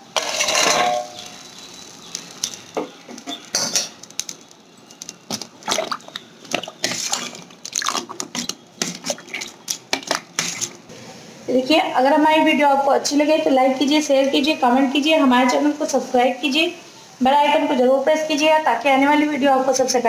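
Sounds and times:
ladle clinking and scraping bowl: 0.1s - 1.2s
steel plate clattering on bowl: 0.2s - 1.2s.

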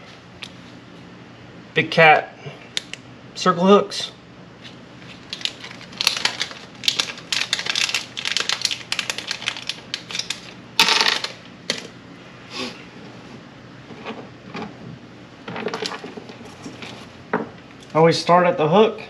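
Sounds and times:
packet crinkling: 5.0s - 11.9s.

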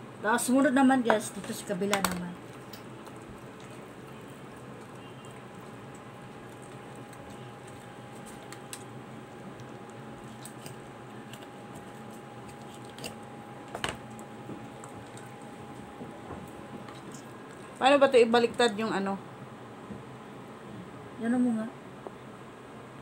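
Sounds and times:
faint steady hum: 0.0s - 23.0s
wet squishing of raw chicken: 2.5s - 13.1s.

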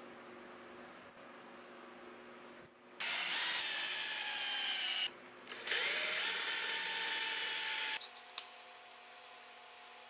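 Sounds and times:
cordless drill boring into wood: 3.0s - 8.0s.

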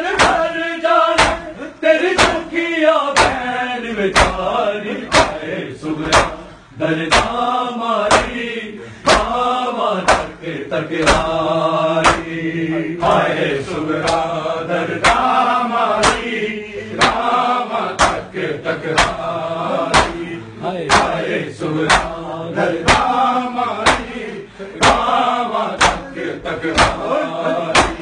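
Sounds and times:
men chanting a lament: 0.0s - 28.0s
hands slapping chests: 0.1s - 0.4s, 1.1s - 1.5s, 2.1s - 2.5s, 3.1s - 3.4s, 4.1s - 4.4s, 5.1s - 5.4s, 6.0s - 6.4s, 7.0s - 7.4s, 8.1s - 8.4s, 9.0s - 9.4s, 10.0s - 10.4s, 11.0s - 11.4s, 12.0s - 12.4s, 13.0s - 13.3s, 14.0s - 14.3s, 14.9s - 15.4s, 16.0s - 16.3s, 17.0s - 18.3s, 18.9s - 20.3s, 20.9s - 22.2s, 22.8s - 23.2s, 23.8s - 24.2s, 24.8s - 28.0s.

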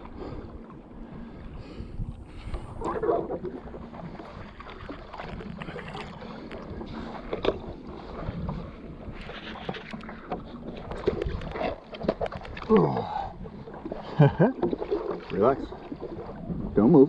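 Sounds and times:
wind buffeting microphone: 0.0s - 9.8s, 15.3s - 17.0s
water lapping against board: 0.0s - 17.0s.

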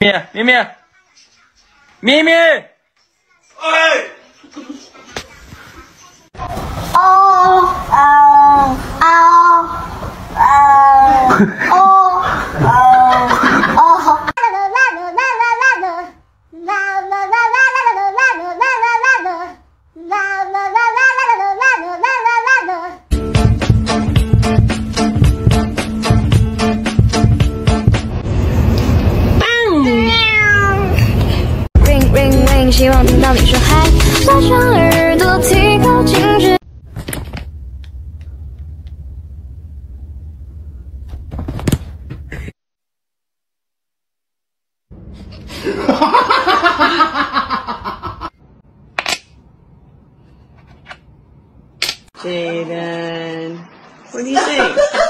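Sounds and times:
high voice singing: 14.4s - 26.2s, 31.8s - 36.6s
music with steady beat: 23.1s - 28.1s, 31.8s - 36.6s
pop song: 23.1s - 28.1s, 31.8s - 36.6s.

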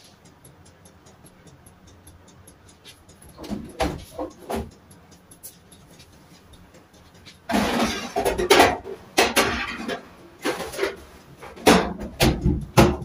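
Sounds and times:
fast steady ticking: 0.0s - 13.0s
oven door clunks: 3.4s - 4.7s, 11.6s - 13.0s.

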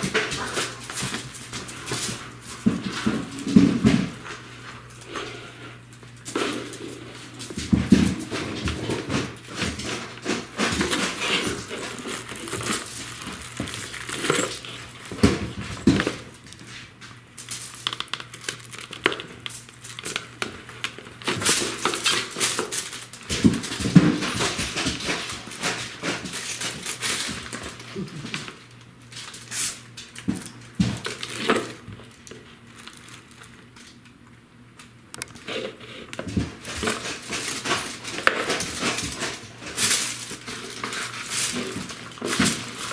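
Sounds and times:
bucket knocking on hardwood floor: 2.6s - 4.2s, 15.1s - 16.3s
paper bags rustling and crinkling: 6.3s - 34.0s, 35.3s - 42.9s.

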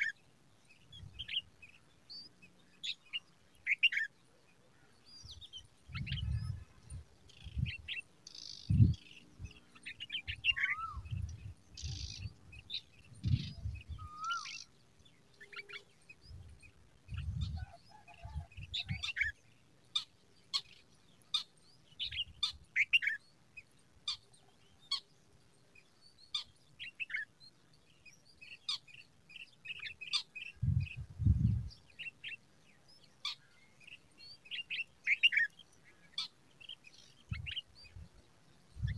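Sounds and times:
birds chirping: 0.0s - 38.9s
rising whistled bird notes: 10.2s - 11.2s, 13.2s - 14.7s.

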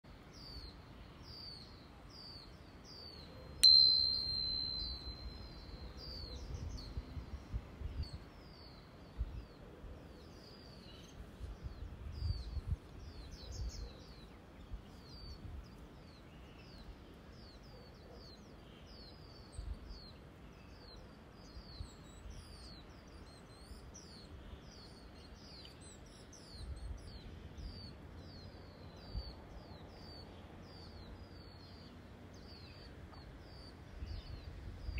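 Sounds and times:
bird chirping: 0.3s - 34.9s
tuning fork ringing: 3.6s - 7.0s.

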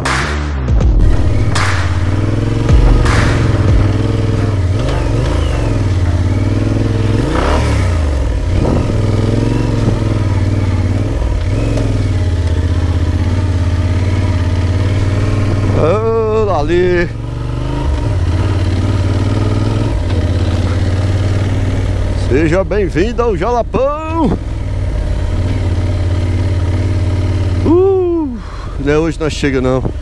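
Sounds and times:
motorcycle engine revving: 0.0s - 30.0s
knocks and thumps from motorcycle: 1.1s - 16.0s, 18.0s - 21.6s, 24.0s - 24.7s.

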